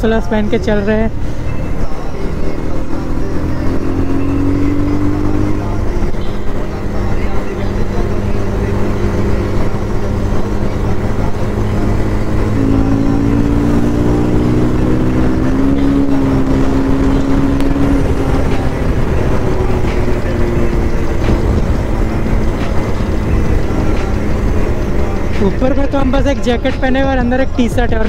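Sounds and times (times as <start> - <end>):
motorcycle engine running: 0.0 - 28.0
wind rushing over microphone: 13.3 - 25.3.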